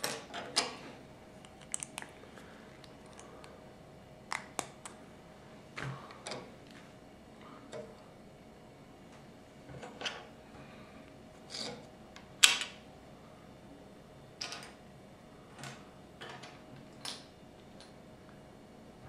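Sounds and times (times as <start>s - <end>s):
plastic pieces clicking: 1.4s - 2.1s.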